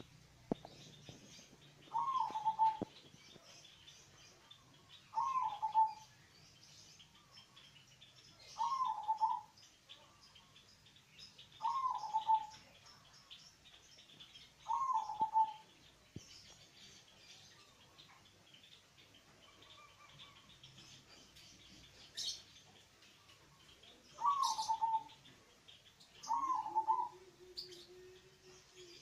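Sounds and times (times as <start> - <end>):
faint high chirping: 0.0 - 29.0
dove cooing: 1.8 - 3.0, 5.1 - 6.0, 8.6 - 9.5, 11.6 - 12.6, 14.6 - 15.7, 24.2 - 25.2, 26.2 - 29.0.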